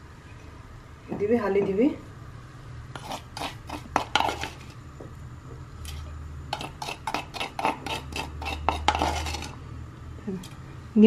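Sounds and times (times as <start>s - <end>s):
low steady hum: 0.0s - 11.0s
spoon scraping wooden mortar: 2.9s - 4.8s, 5.8s - 9.6s.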